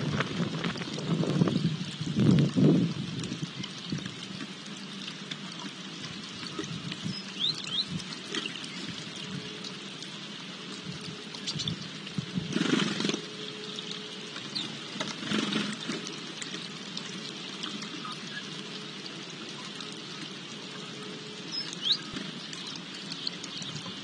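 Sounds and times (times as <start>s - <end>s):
water trickling from fountain: 0.0s - 24.0s
sparrows chirping: 6.5s - 8.9s, 14.4s - 14.8s, 21.4s - 24.0s.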